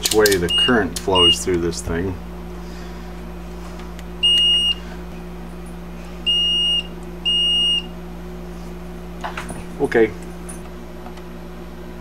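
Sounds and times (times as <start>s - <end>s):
multimeter beeps: 0.5s - 1.5s, 4.2s - 4.8s, 6.3s - 7.9s.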